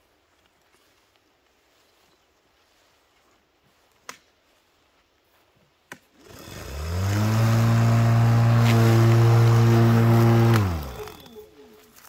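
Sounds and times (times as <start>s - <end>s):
electric lawn mower whine: 6.2s - 11.4s.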